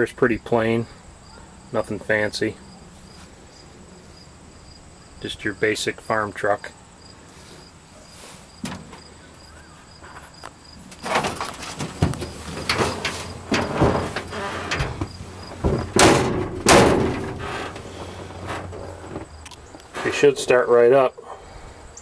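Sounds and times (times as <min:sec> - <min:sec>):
crickets chirping: 0:00.0 - 0:22.0
truck cab clunks and rattles: 0:08.5 - 0:09.2, 0:10.7 - 0:20.6
loud bangs: 0:11.0 - 0:19.3.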